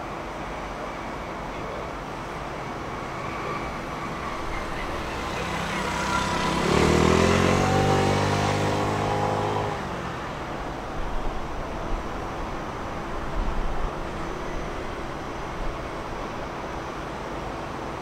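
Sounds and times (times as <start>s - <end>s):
vehicle engine passing by: 3.1s - 10.7s.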